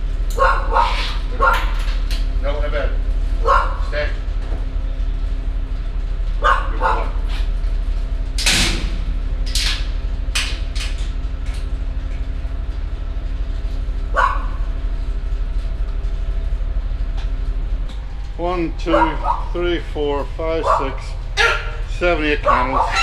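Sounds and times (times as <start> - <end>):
steady low hum: 0.0 - 23.0
dog barking: 0.3 - 1.8, 3.4 - 3.9, 6.4 - 7.2, 14.1 - 14.6, 18.9 - 19.6, 20.6 - 23.0.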